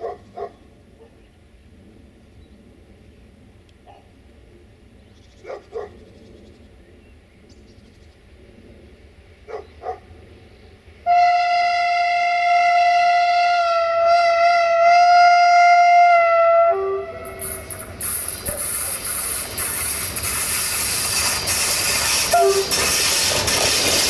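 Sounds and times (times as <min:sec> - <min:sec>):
dog barking: 0:00.0 - 0:01.2, 0:05.4 - 0:06.0, 0:09.5 - 0:10.1
locomotive horn: 0:11.0 - 0:18.0, 0:20.9 - 0:24.0.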